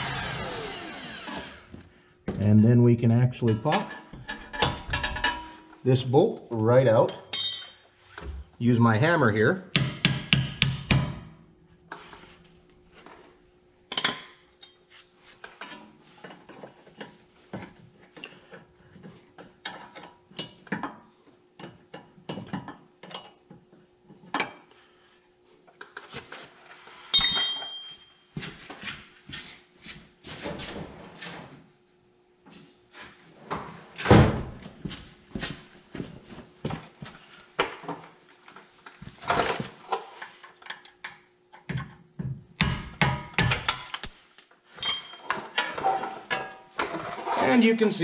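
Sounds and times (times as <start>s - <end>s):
ringing metal clink: 7.2s - 7.8s, 27.2s - 28.4s, 43.5s - 45.3s
wrench and bolt clinking: 27.2s - 28.4s, 43.4s - 45.7s.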